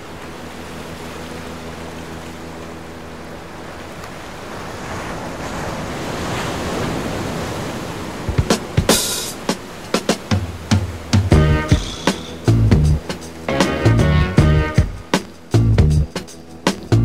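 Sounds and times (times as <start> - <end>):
wave breaking: 0.0 - 15.5
low steady hum: 11.3 - 16.1.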